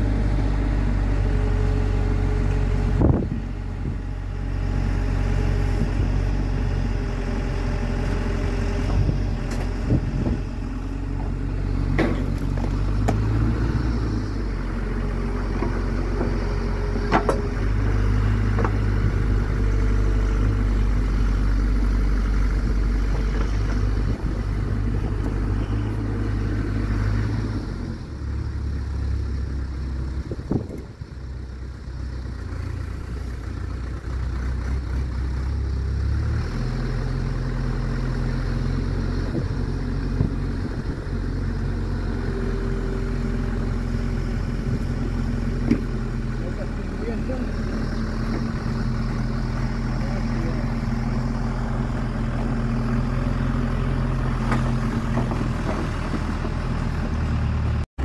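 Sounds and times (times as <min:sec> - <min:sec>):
excavator diesel engine: 0:00.0 - 0:58.0.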